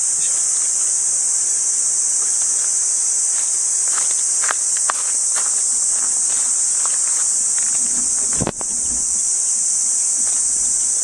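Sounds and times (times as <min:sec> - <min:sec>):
high-pitched insect chorus: 0:00.0 - 0:11.0
scuffs on gravel: 0:02.1 - 0:08.7.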